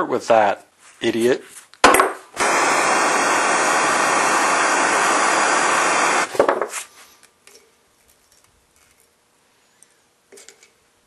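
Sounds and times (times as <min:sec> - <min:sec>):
torch flame hissing: 0:02.4 - 0:06.9.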